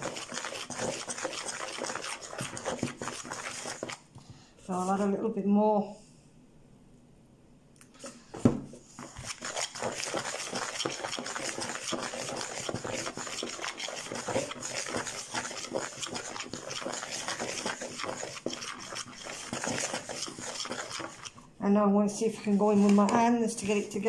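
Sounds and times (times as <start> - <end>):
knife scraping in bowl: 0.0 - 4.0, 9.0 - 21.5, 22.2 - 24.0.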